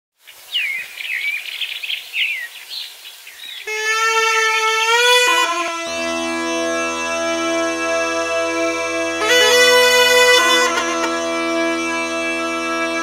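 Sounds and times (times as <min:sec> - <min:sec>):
birds chirping: 0:00.2 - 0:13.0
bagpipe music with drone: 0:03.7 - 0:13.0.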